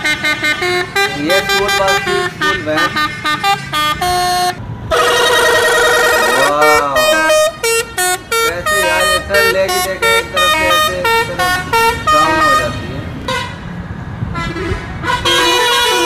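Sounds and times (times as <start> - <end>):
bus horn playing tune: 0.0 - 13.6, 14.3 - 16.0.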